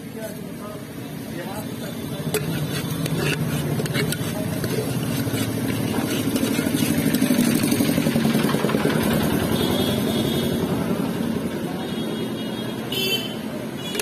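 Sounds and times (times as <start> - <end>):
knife scraping steel pot: 1.7 - 8.8
vehicle engine running: 2.4 - 11.5.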